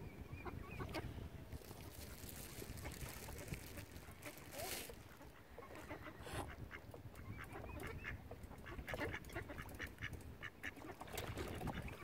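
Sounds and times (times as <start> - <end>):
ducks quacking: 2.8 - 11.0.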